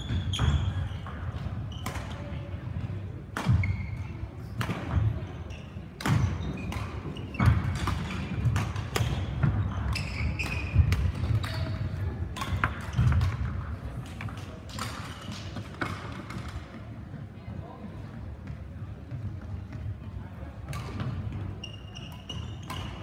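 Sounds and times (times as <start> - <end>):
shoe squeaks on court floor: 0.0 - 2.3, 3.6 - 4.3, 5.4 - 11.8, 21.4 - 23.0
racket striking shuttlecock: 3.3 - 3.6, 6.0 - 13.5.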